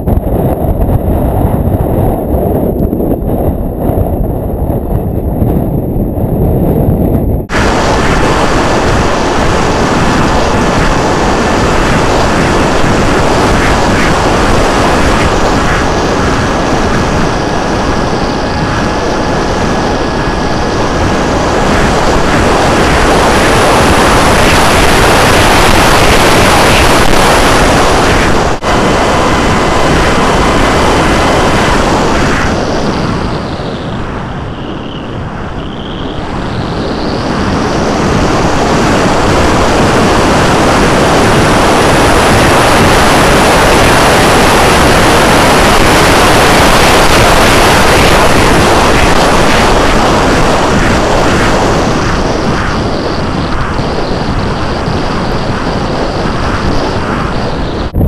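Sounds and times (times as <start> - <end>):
electric motor and propeller whine: 0.0 - 58.0
heavy wind rushing: 0.0 - 58.0.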